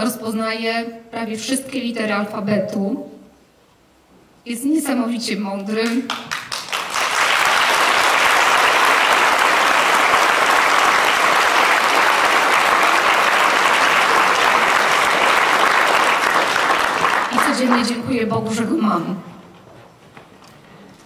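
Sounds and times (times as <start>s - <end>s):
audience applauding: 6.1s - 18.0s.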